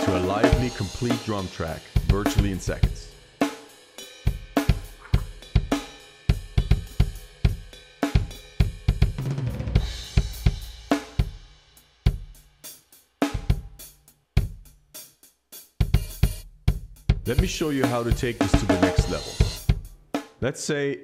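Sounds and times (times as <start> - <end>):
funk drum groove: 0.0 - 20.3.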